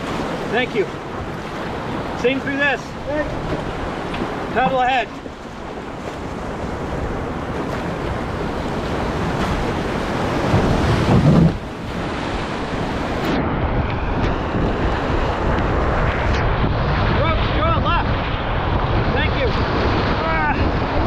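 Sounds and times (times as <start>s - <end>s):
rushing whitewater: 0.0s - 13.4s
wind on microphone: 0.0s - 21.0s.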